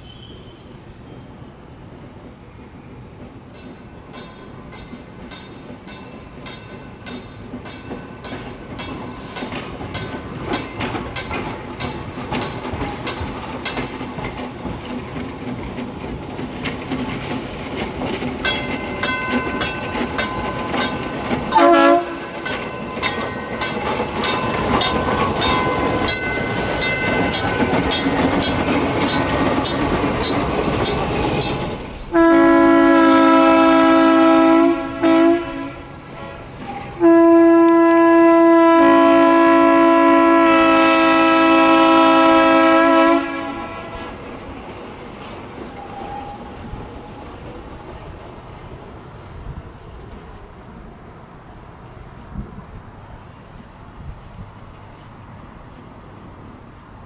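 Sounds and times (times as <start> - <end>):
trolley car rhythmic clicking: 0.0 - 57.0
trolley horn blasts: 20.8 - 27.6, 32.1 - 44.2.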